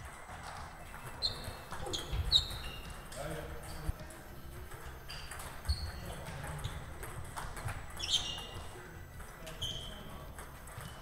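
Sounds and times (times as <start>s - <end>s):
hum of distant table tennis: 0.0s - 11.0s
shoe squeaks on floor: 0.8s - 3.9s, 5.0s - 7.0s, 7.8s - 8.8s, 9.4s - 11.0s.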